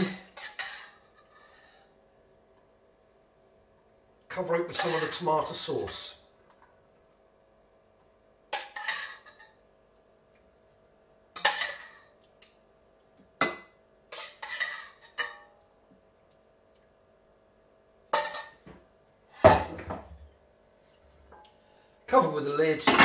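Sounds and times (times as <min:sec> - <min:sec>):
spoon scraping a saucepan: 0:00.0 - 0:01.9, 0:04.7 - 0:06.0, 0:14.1 - 0:15.4.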